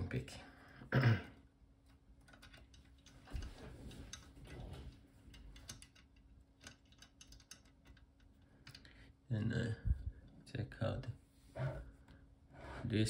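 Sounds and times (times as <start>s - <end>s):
soft handling noise: 1.8s - 8.9s.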